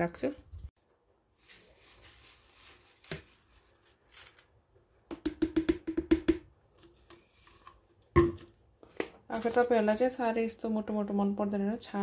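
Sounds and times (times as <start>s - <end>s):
powder pouring rustle: 1.3s - 4.6s
plastic jar knocking on container: 5.1s - 6.5s, 8.2s - 8.5s.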